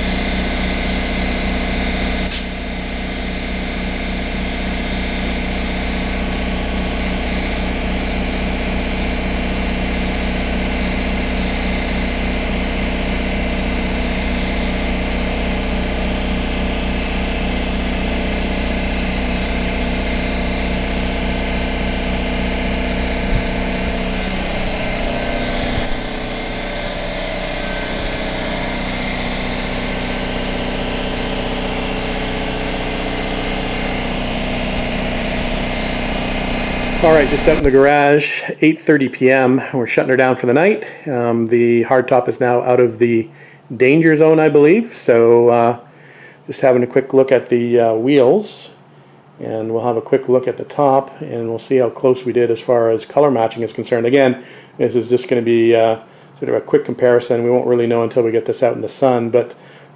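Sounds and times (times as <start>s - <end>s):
motor-driven machine humming: 0.0s - 38.6s, 50.5s - 59.9s
short high hiss: 2.3s - 2.6s.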